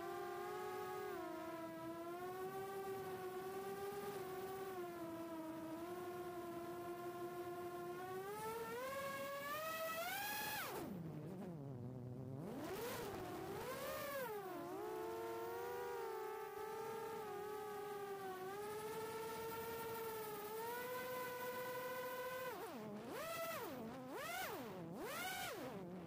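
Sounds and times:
drone motors whining: 0:08.1 - 0:26.0.

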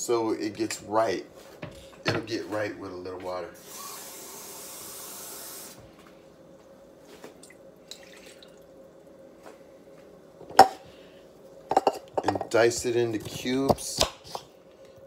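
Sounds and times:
water running from tap: 0:03.7 - 0:05.8.

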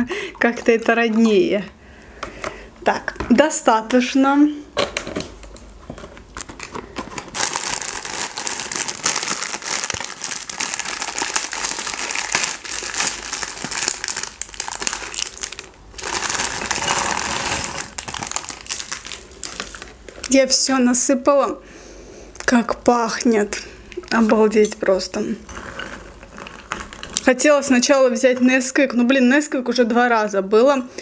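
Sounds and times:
plastic bag crinkling: 0:05.4 - 0:20.7, 0:24.1 - 0:27.4.

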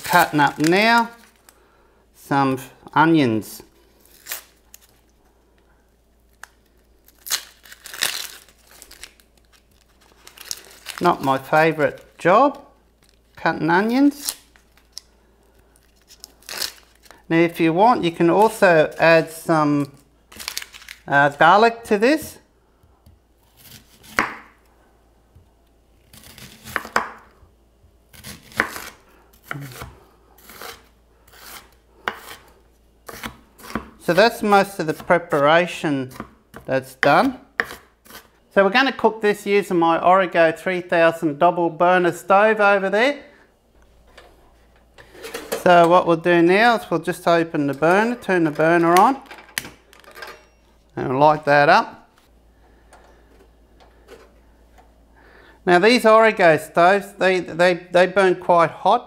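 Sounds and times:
knife cutting through onion: 0:28.1 - 0:32.5, 0:33.1 - 0:34.2.

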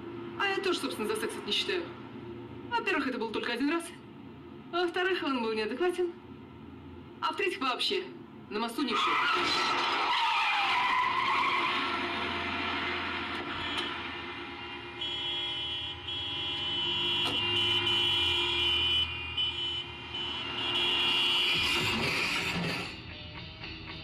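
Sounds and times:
car tyres skidding and squealing: 0:08.9 - 0:23.0.

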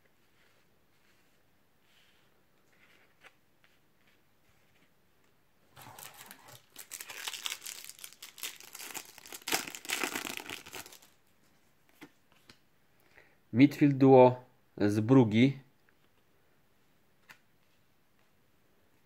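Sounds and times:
foil wrapper crinkling and tearing: 0:05.8 - 0:11.2.

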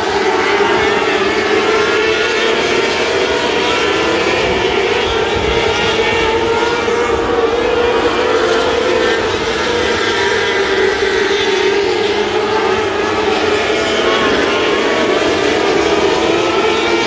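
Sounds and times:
racing car engines droning: 0:00.0 - 0:17.0.

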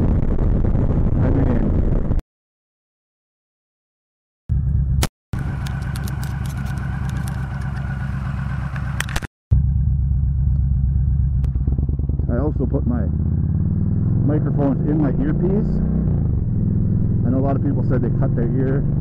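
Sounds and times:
motorcycle engine idling: 0:04.5 - 0:14.0
sharp clicks and knocks: 0:05.0 - 0:07.9.

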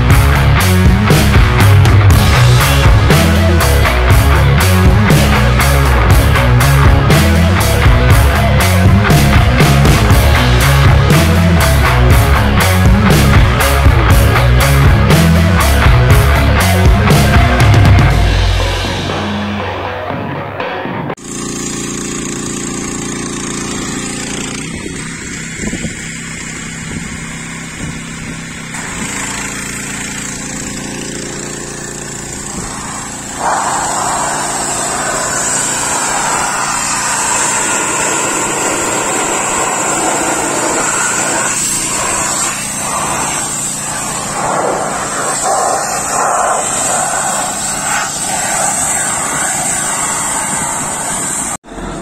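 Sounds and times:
motor running: 0:00.0 - 0:19.6, 0:21.2 - 0:52.0
steady rushing noise: 0:32.3 - 0:51.6.

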